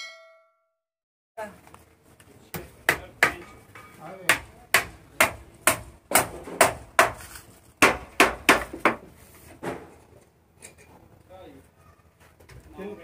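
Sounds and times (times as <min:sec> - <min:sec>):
hammer striking wooden timbers: 0:02.5 - 0:09.9.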